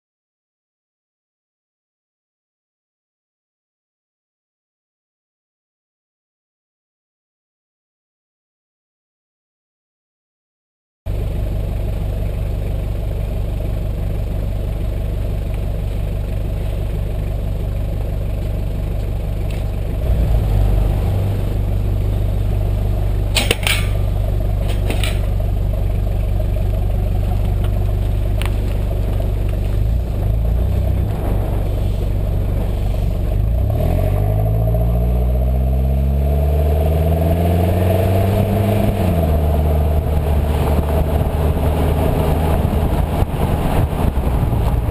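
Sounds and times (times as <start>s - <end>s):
diesel engine running: 11.1s - 44.9s.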